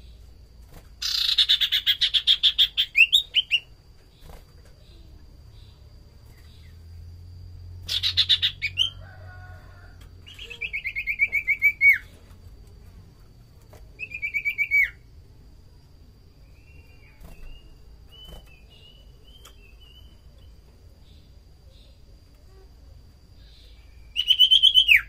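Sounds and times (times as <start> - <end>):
bird singing whistled notes: 1.0 - 3.8, 7.8 - 9.0, 10.2 - 12.1, 14.0 - 15.0, 16.4 - 20.5, 23.4 - 25.0.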